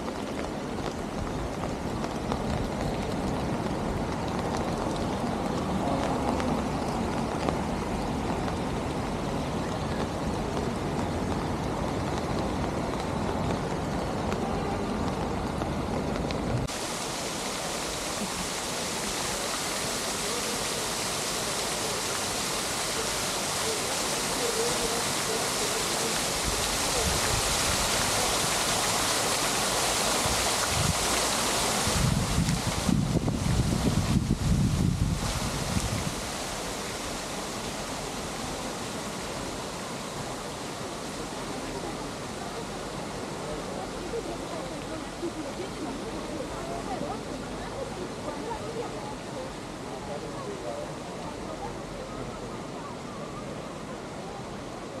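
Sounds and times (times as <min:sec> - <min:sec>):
city street hiss: 0:00.0 - 0:55.0
wind buffeting microphone: 0:30.2 - 0:36.4.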